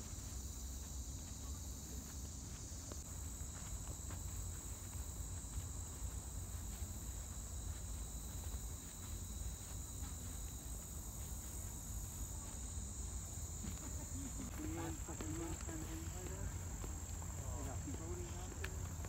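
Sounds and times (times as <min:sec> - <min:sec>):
insects singing: 0:00.0 - 0:19.0.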